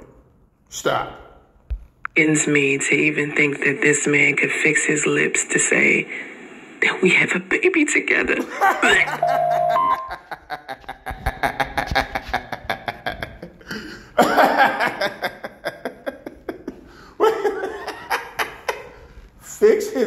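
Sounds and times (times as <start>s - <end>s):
man laughing: 8.6s - 19.0s.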